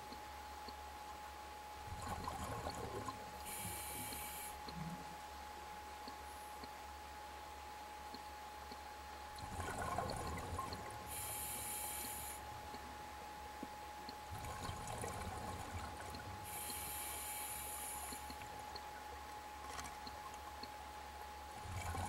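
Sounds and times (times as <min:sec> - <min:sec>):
diver breathing through regulator: 0:11.1 - 0:12.4, 0:16.4 - 0:18.4.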